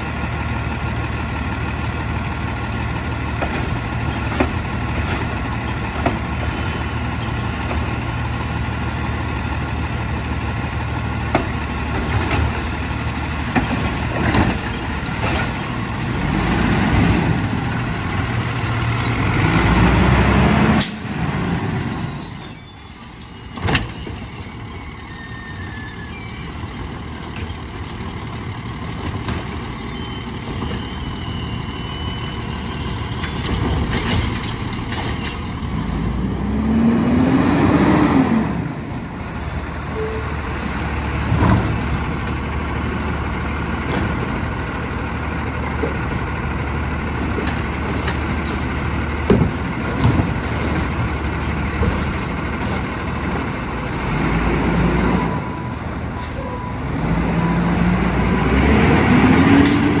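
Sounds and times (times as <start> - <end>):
garbage truck engine revving: 12.7 - 22.1, 33.8 - 39.6, 40.4 - 56.0, 56.8 - 60.0.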